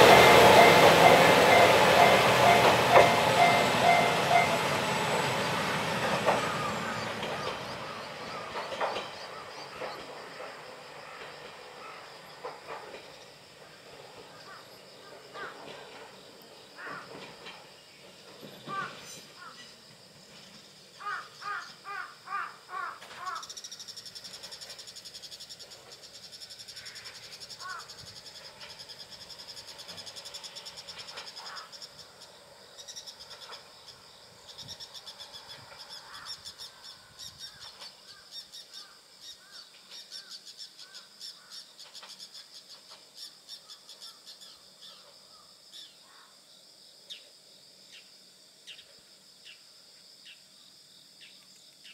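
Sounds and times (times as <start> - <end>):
insects trilling: 0.0 - 51.9
crow cawing: 21.0 - 23.5, 26.8 - 28.0, 31.4 - 31.7, 36.1 - 36.4
short insect chirps: 23.2 - 46.0.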